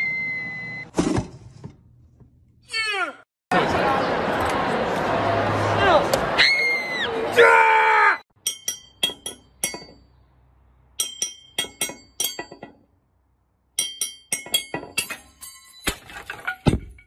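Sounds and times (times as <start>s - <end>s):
knife clinking glass bottle: 8.4s - 10.0s.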